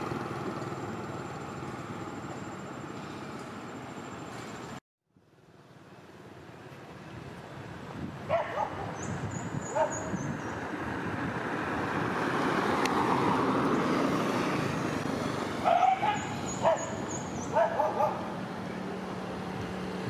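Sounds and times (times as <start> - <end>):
rush of background noise: 0.0 - 20.0
dogs barking: 8.3 - 9.0, 9.7 - 10.1, 15.6 - 18.3.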